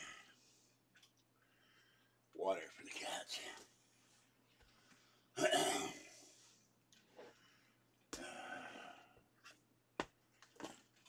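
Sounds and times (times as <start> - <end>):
person breathing heavily: 7.2 - 9.2.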